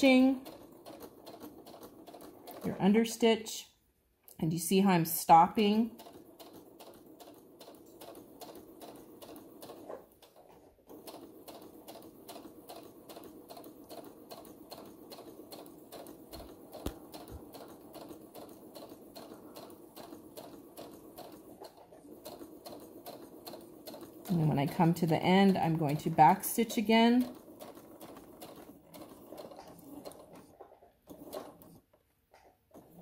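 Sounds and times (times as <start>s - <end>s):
sewing machine stitching: 0.0s - 3.3s, 4.8s - 33.0s.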